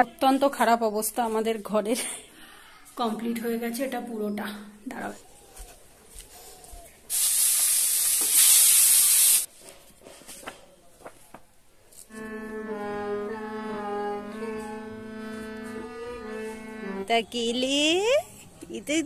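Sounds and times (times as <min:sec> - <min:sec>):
harmonium playing: 0:03.1 - 0:04.7, 0:12.1 - 0:17.2.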